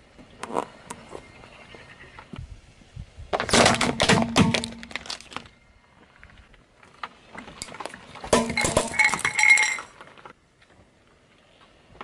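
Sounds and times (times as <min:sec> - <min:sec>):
plastic tubs cracking under tyre: 0:03.3 - 0:05.6, 0:06.8 - 0:10.4.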